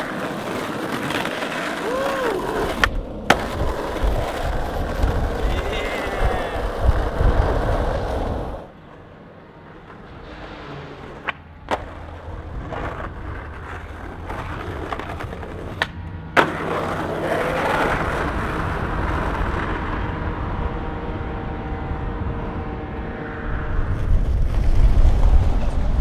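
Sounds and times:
skateboard clacking on ground: 0.0s - 10.2s, 11.1s - 19.9s
skateboard wheels rolling on asphalt: 0.0s - 26.0s.

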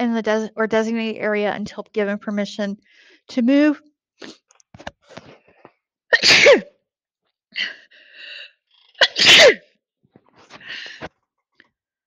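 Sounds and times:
breathing: 2.8s - 3.3s, 7.6s - 8.8s, 10.5s - 11.2s
woman sneezing: 6.1s - 6.7s, 9.0s - 9.6s.

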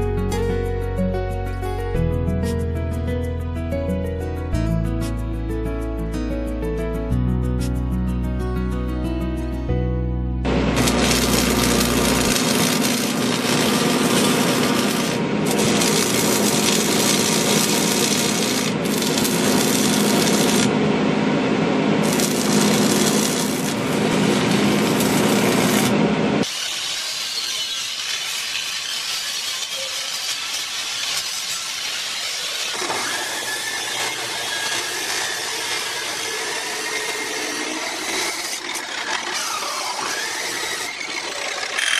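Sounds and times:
arc welding crackle: 10.5s - 20.8s, 22.0s - 41.9s
low electrical hum: 10.5s - 26.4s
hand-held power tool hiss: 10.8s - 20.7s, 22.0s - 41.9s.

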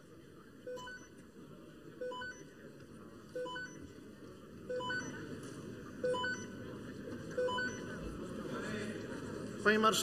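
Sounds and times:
short electronic beeps: 0.7s - 1.2s, 4.7s - 5.2s.

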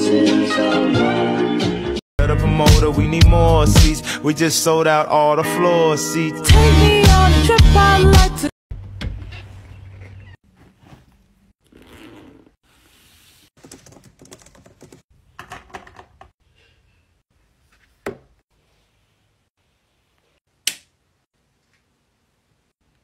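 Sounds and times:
backpack rustling: 9.4s - 13.2s.

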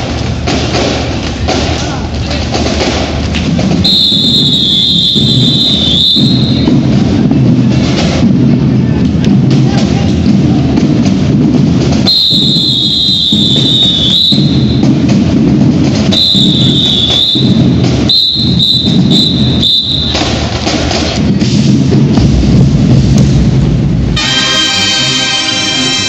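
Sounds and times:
marching drumline cadence: 0.0s - 26.0s
whistle blasts: 3.8s - 6.9s, 12.0s - 15.0s, 16.1s - 20.4s.

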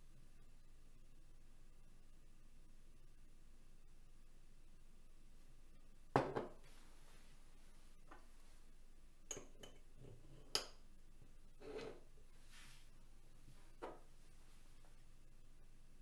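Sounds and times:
assembly set down on wooden table: 6.2s - 6.6s.

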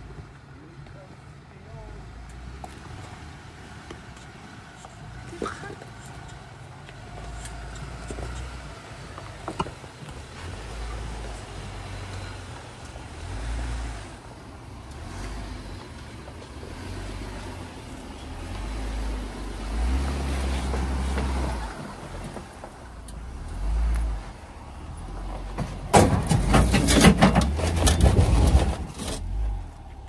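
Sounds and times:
vehicle rumbling: 0.0s - 30.0s
loud knocks and rattles: 25.5s - 29.0s.

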